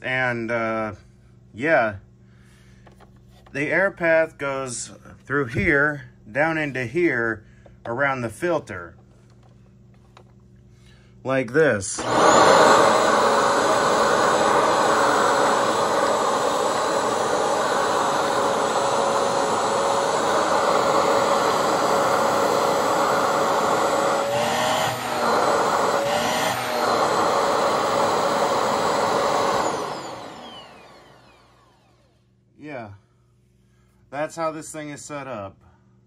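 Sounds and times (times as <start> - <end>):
vacuum cleaner motor whine: 11.9 - 32.2.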